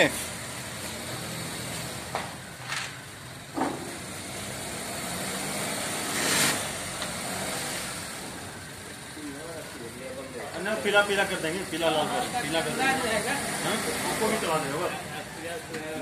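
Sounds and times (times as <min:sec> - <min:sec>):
car engine idling: 0:07.8 - 0:16.0.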